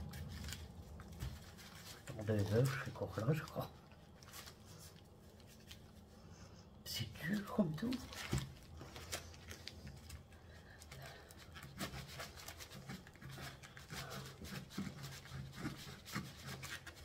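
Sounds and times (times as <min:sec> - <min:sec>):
knife sawing through hard block: 0:11.8 - 0:17.0.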